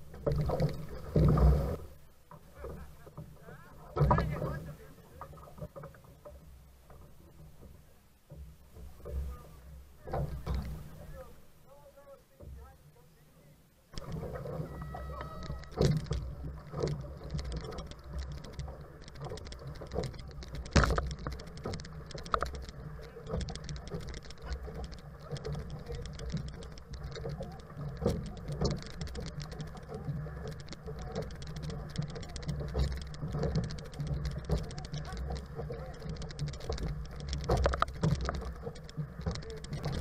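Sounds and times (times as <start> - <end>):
water splashing against canoe hull: 0.0 - 12.9, 13.9 - 40.0
knocks and clicks: 14.0 - 40.0
rush of water and wind: 14.0 - 40.0.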